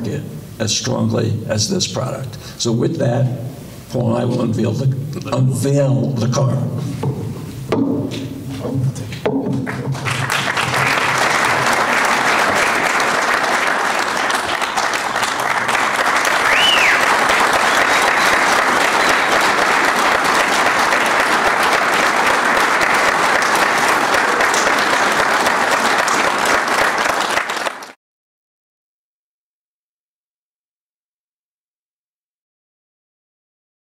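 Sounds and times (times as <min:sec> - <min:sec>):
audience applauding: 0:09.6 - 0:28.0.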